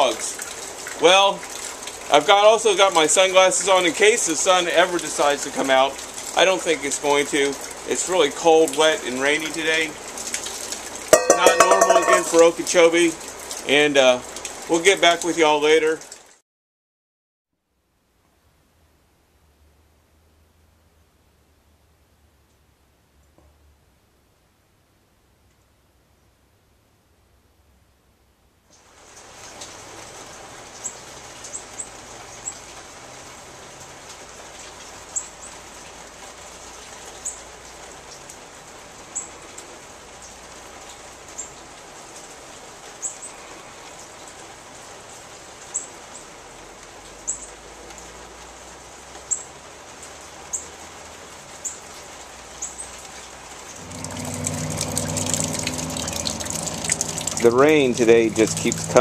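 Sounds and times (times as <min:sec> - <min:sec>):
running water gushing: 0:00.0 - 0:16.3, 0:53.1 - 0:59.0
heavy rain: 0:00.0 - 0:16.4, 0:28.8 - 0:59.0.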